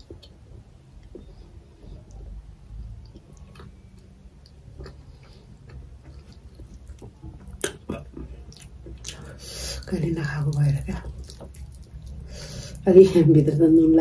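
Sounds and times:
close chewing: 0:10.5 - 0:12.3
wet mouth clicks and smacks: 0:11.2 - 0:12.2.

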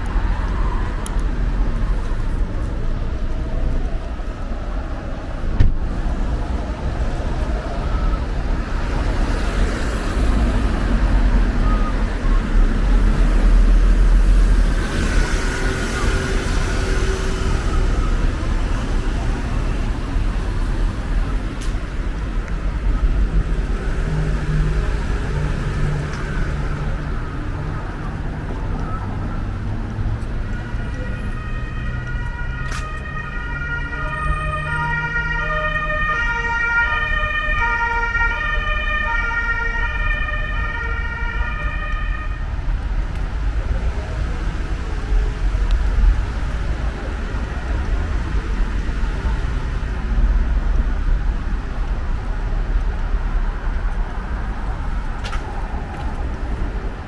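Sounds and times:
street traffic rumble: 0:00.0 - 0:57.0
two-tone emergency siren: 0:30.4 - 0:42.5.

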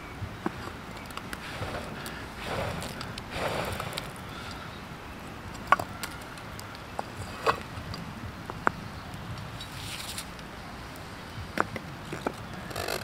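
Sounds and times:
embers spilling and rustling: 0:01.4 - 0:04.5.

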